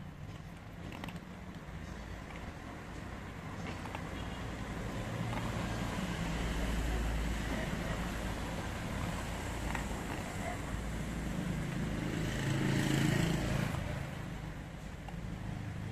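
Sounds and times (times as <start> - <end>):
street traffic rumble: 0.0 - 15.9
vehicle passing: 1.9 - 14.6.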